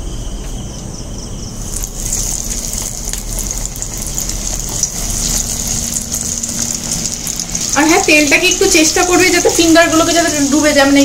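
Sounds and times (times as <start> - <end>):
oil sizzling and crackling: 1.6 - 11.0.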